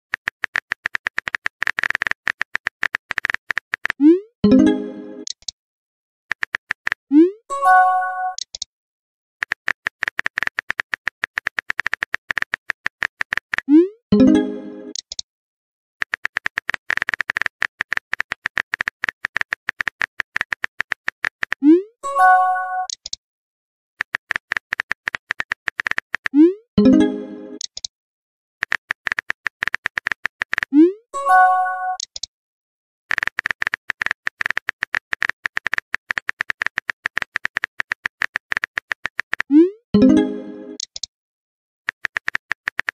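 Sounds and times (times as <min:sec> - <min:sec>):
phone keyboard typing clicks: 0:00.1 - 0:04.0, 0:06.3 - 0:07.1, 0:09.4 - 0:13.7, 0:16.0 - 0:21.6, 0:22.8 - 0:23.2, 0:24.0 - 0:26.4, 0:28.6 - 0:30.7, 0:31.9 - 0:32.3, 0:33.1 - 0:41.1, 0:41.9 - 0:42.9.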